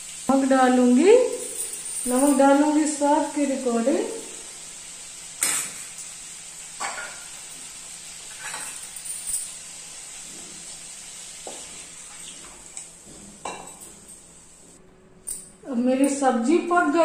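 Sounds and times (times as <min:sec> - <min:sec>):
food sizzling in a pan: 0:00.0 - 0:14.8
spoon clinking steel containers: 0:08.3 - 0:09.6.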